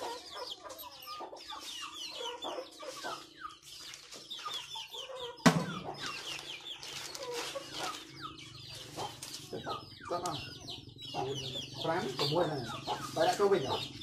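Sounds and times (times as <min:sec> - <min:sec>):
chickens clucking: 0:00.0 - 0:14.0
sharp knock: 0:05.4 - 0:05.9.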